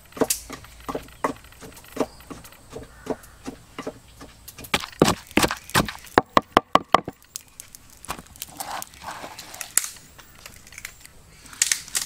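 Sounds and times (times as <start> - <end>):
sharp knocks: 0.0 - 7.2
crinkling handling noises: 7.1 - 12.0.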